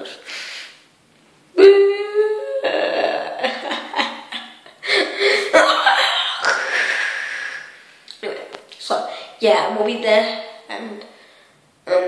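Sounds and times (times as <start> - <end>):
boy making drawn-out vocal noise: 1.6 - 3.4
boy laughing: 1.6 - 7.3.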